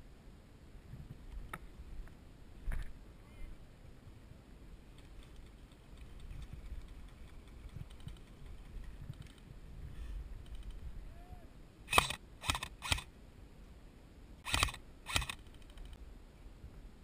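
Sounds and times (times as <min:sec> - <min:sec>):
airsoft rifle shots: 0:11.9 - 0:13.1, 0:14.4 - 0:15.4.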